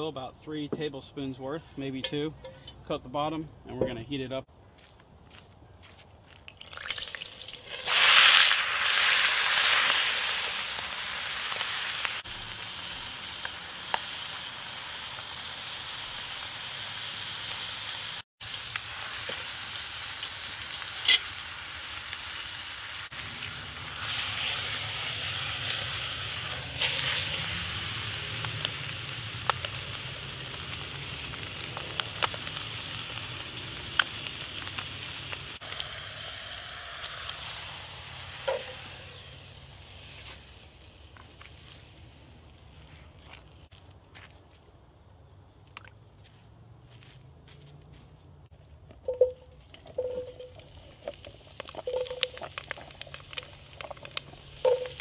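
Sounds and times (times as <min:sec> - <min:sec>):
chicken frying in oil: 0:06.7 - 0:41.6, 0:49.1 - 0:55.0.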